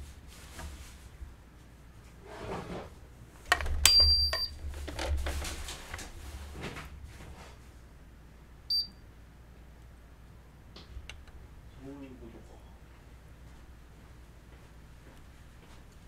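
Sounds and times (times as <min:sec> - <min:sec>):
electronic beep: 0:03.9 - 0:04.5, 0:08.7 - 0:09.0.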